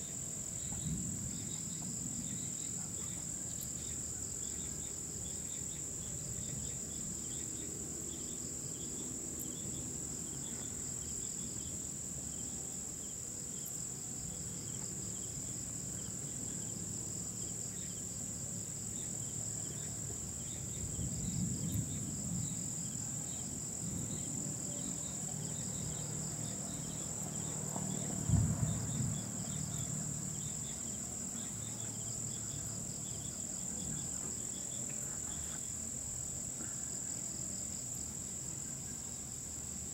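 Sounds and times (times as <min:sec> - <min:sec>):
crickets chirping: 0:00.0 - 0:39.9
insects droning: 0:00.0 - 0:39.9
distant thunder rumbling: 0:20.6 - 0:30.8.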